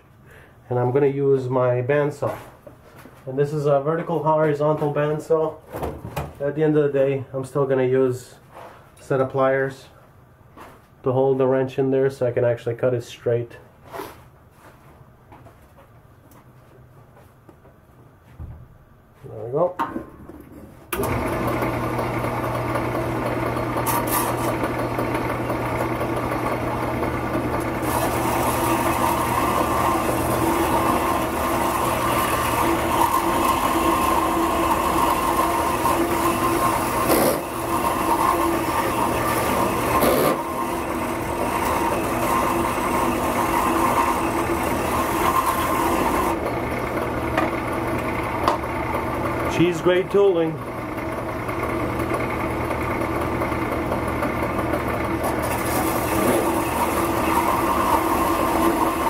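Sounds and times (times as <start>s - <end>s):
bandsaw motor running: 20.9s - 59.0s.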